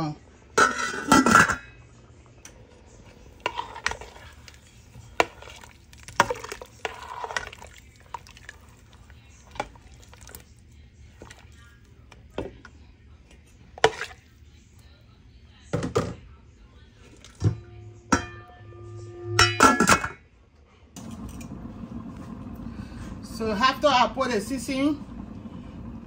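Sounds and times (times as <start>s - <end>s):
metal spoon stirring and scraping pot: 0.6s - 1.6s, 2.5s - 12.4s, 13.6s - 14.3s
soup boiling: 2.4s - 12.5s, 21.0s - 26.0s
clinks and knocks against pot: 19.4s - 20.2s.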